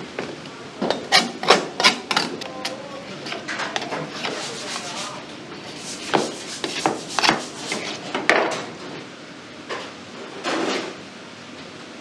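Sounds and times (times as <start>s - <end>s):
knife scraping clam shells: 1.1s - 5.1s, 5.7s - 8.0s.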